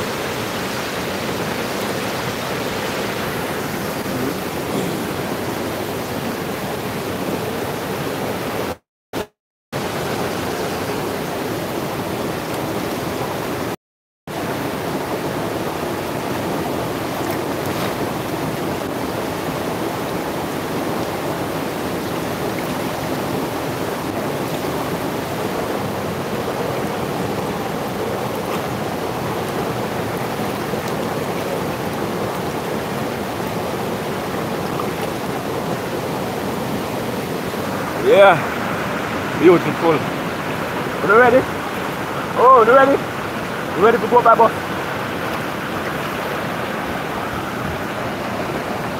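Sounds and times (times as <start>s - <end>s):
river rapids rushing over rocks: 0.0s - 48.9s.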